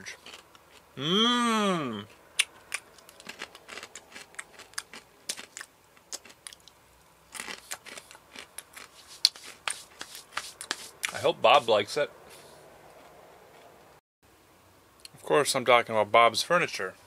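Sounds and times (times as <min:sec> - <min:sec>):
chewing crunchy snacks: 0:00.0 - 0:00.9, 0:02.0 - 0:11.2.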